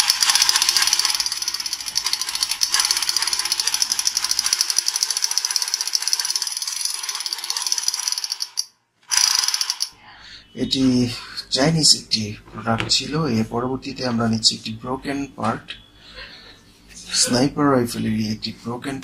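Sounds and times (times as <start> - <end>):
toy gun clicking: 0.0 - 10.0.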